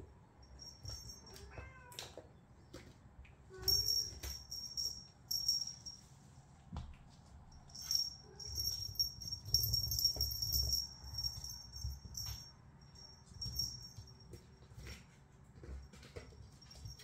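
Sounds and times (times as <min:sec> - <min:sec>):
high jingling: 0:00.4 - 0:01.7, 0:03.6 - 0:06.2, 0:07.5 - 0:14.9, 0:15.8 - 0:17.0.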